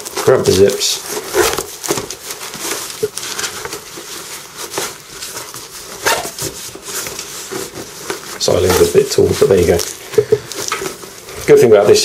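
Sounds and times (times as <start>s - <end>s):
fabric rustling and scraping: 0.0s - 12.0s
pouch zipper closing: 1.3s - 1.7s, 5.9s - 6.4s.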